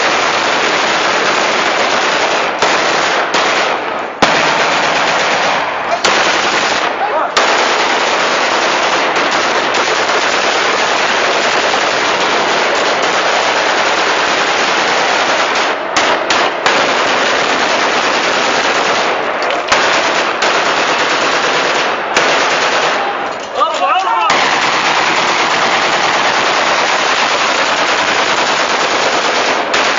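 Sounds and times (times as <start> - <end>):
automatic rifle fire: 0.0 - 23.3, 24.3 - 29.9
sharp single gunshots: 2.2 - 10.2.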